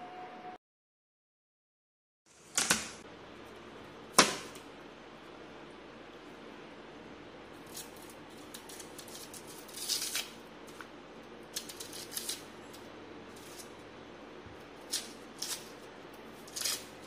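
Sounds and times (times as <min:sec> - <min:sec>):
onion skin crackling and tearing: 0:07.6 - 0:13.7, 0:14.8 - 0:17.0.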